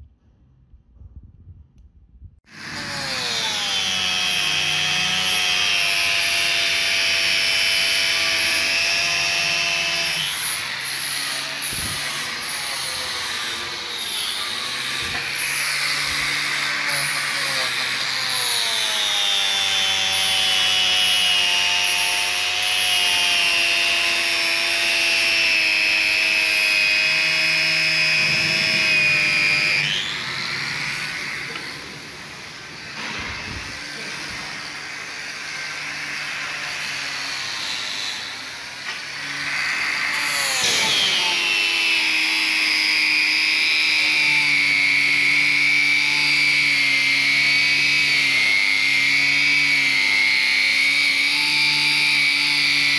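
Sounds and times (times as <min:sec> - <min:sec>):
angle grinder whine: 0:02.5 - 0:52.9.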